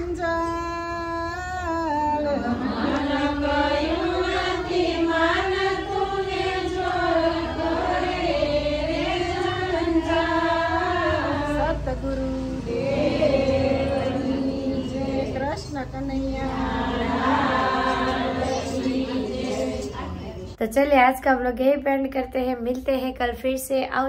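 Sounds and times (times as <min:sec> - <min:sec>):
women singing in unison: 0:00.0 - 0:20.0.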